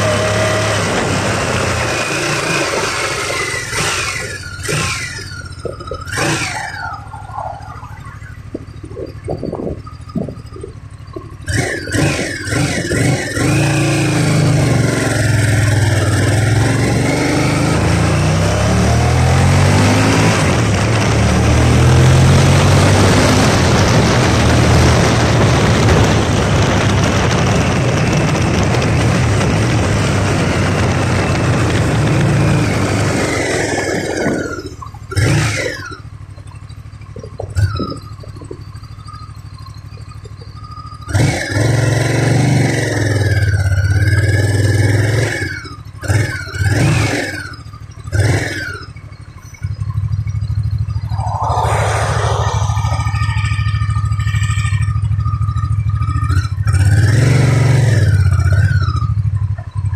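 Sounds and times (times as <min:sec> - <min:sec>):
motorcycle engine accelerating: 0:00.0 - 0:59.9
motorcycle engine revving: 0:00.0 - 0:59.9
wind rush over microphone: 0:08.4 - 0:11.2, 0:19.2 - 0:34.7, 0:50.8 - 0:55.1.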